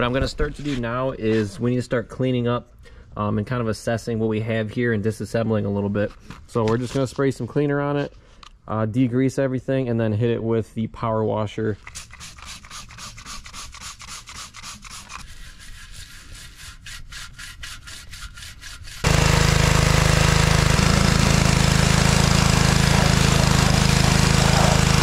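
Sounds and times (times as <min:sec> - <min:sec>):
bristle brush scrubbing metal: 0:11.8 - 0:25.0
pressure washer engine hum: 0:19.0 - 0:25.0
water jet hissing: 0:19.0 - 0:25.0.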